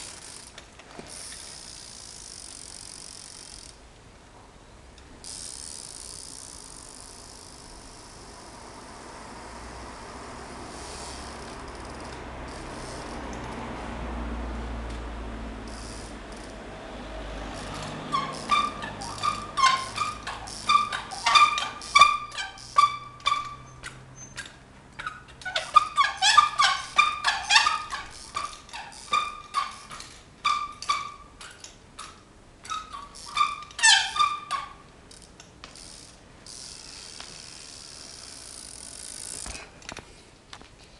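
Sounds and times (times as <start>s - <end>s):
bike squeaks and knocks on concrete: 0.0s - 3.6s, 17.5s - 37.6s.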